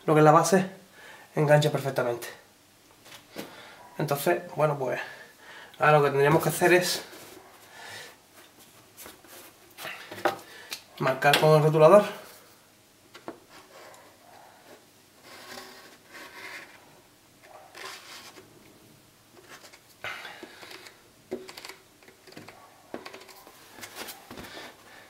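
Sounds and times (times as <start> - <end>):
marker pen scratching on plastic: 15.2 - 16.8, 17.5 - 18.4.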